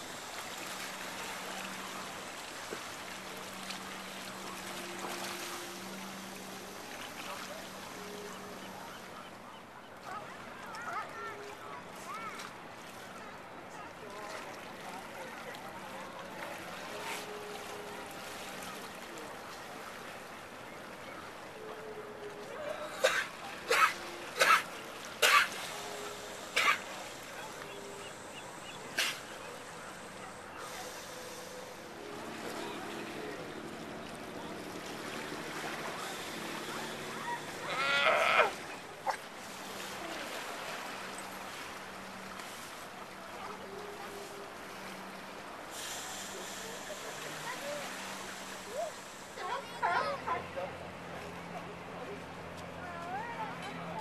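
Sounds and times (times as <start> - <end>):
seawater lapping against boulders: 0.0 - 54.0
sea lion bleating call: 21.8 - 32.9, 36.0 - 39.2.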